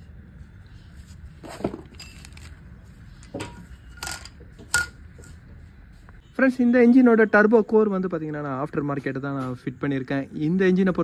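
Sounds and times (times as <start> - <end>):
clinks and knocks of parts: 1.6 - 2.6, 3.2 - 5.4.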